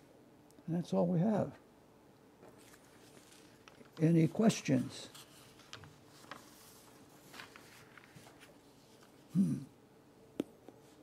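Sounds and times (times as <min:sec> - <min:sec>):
faint clicks and rustles: 0:02.4 - 0:09.3.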